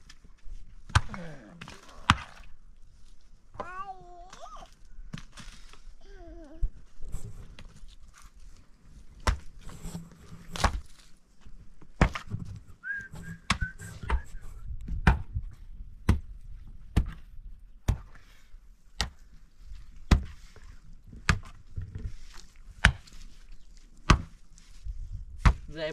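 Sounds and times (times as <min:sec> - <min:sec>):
brief high whistle tone: 0:12.8 - 0:14.6.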